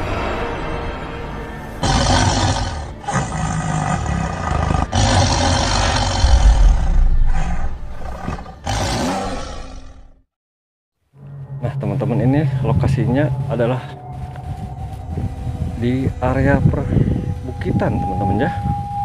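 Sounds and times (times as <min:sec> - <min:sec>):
tiger roaring and growling: 0:01.8 - 0:10.2.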